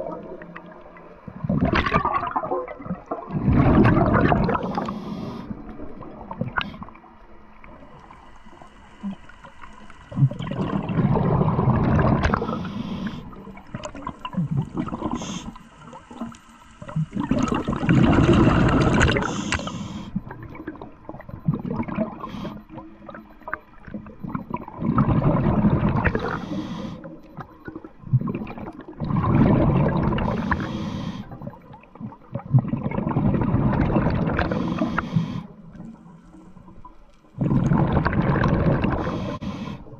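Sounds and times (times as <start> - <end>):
gurgling exhaled bubbles: 0.0 - 39.9
diver breathing through regulator: 4.5 - 5.6, 12.2 - 13.7, 14.4 - 16.2, 18.1 - 20.2, 26.1 - 27.1, 30.2 - 31.4, 34.4 - 35.6, 38.8 - 39.9.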